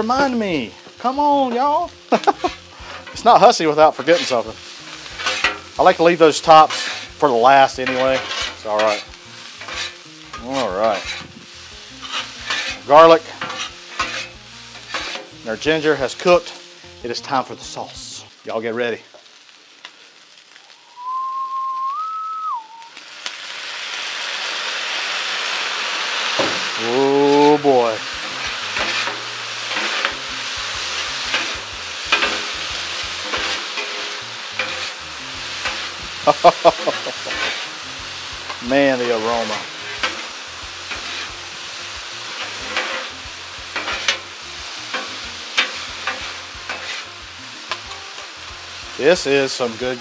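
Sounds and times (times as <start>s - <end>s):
sauce sizzling on griddle: 0.0s - 50.0s
metal spatulas scraping steel: 2.4s - 11.4s, 12.0s - 15.3s, 27.2s - 30.3s, 31.0s - 36.0s, 36.8s - 37.8s, 38.5s - 40.3s, 40.9s - 41.4s, 42.3s - 43.2s, 43.8s - 44.2s, 44.9s - 47.1s
short whistle: 20.8s - 23.0s.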